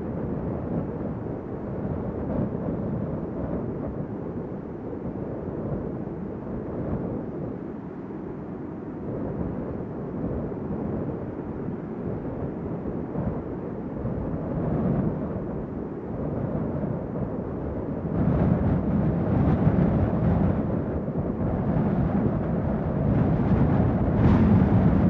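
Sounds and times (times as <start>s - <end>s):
strong wind gusts: 0.0s - 25.0s.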